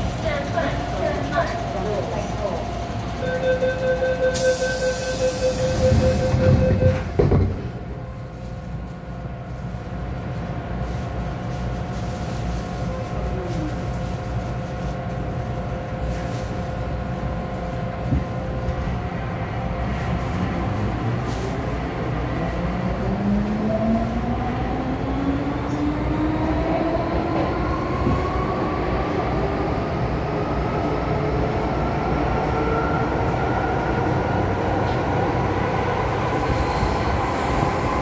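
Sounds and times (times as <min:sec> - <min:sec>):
train humming: 0:00.0 - 0:38.0
door warning beep: 0:03.2 - 0:07.2
train doors knocking shut: 0:05.8 - 0:07.8.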